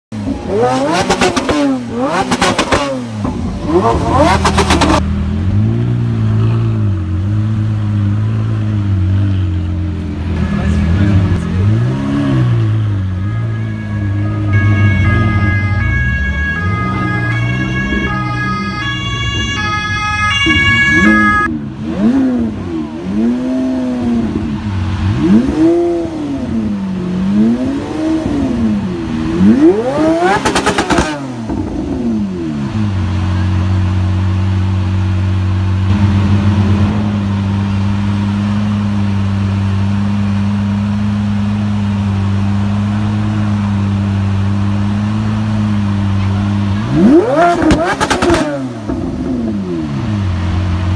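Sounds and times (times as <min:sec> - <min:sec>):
sports car engine revving: 0:00.2 - 0:50.9
car engine idling: 0:28.6 - 0:50.9
exhaust pops: 0:47.5 - 0:49.3.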